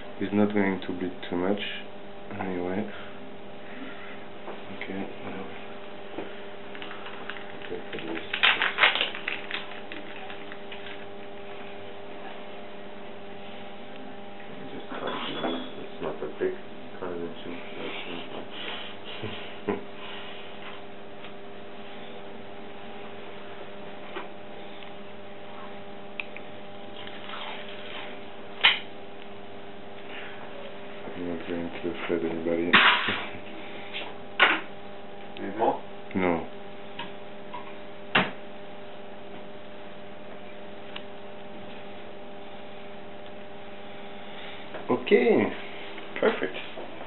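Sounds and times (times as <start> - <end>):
electrical hum: 0.0 - 47.0
crackling handling noises: 6.2 - 11.5.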